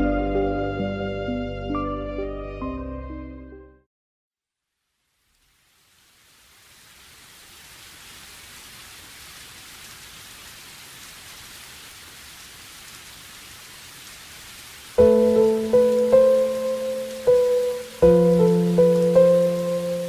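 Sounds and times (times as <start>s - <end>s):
background music with sustained notes: 0.0s - 3.8s, 15.0s - 20.0s
steady hiss: 4.8s - 20.0s.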